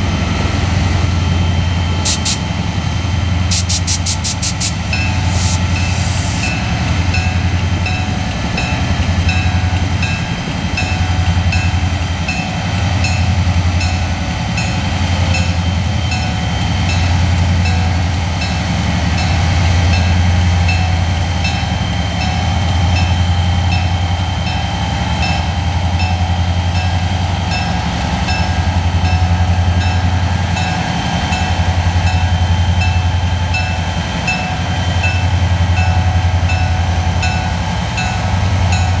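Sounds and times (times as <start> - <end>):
diesel locomotive engine drone: 0.0 - 39.0
locomotive bell ringing: 4.8 - 39.0.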